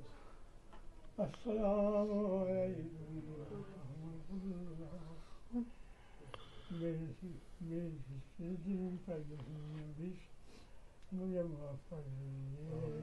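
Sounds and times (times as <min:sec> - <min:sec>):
man chanting held notes: 0:01.2 - 0:05.7, 0:06.4 - 0:10.3, 0:11.1 - 0:13.0.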